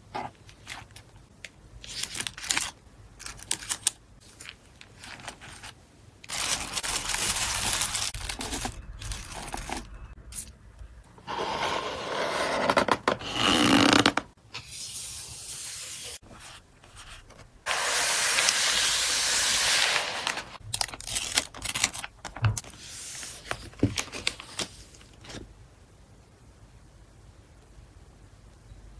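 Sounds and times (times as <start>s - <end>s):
plastic crinkling: 1.8s - 10.0s, 19.8s - 22.7s
plastic mailer rustling: 1.8s - 10.2s, 19.3s - 25.2s
cardboard box scraping and rubbing: 11.2s - 14.0s.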